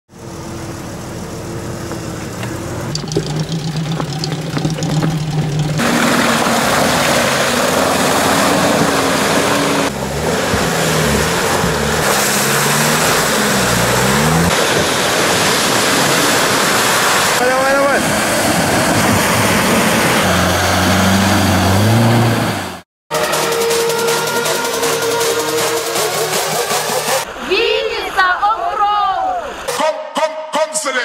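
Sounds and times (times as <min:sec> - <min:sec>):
off-road engines revving: 0:00.6 - 0:28.5
loud rushing noise: 0:05.8 - 0:27.5.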